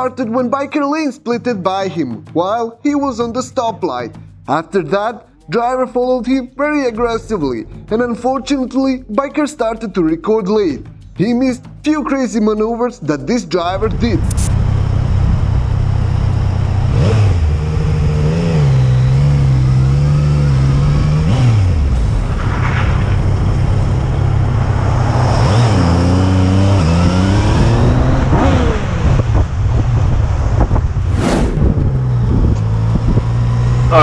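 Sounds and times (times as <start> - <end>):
motorcycle engine revving: 13.8 - 34.0.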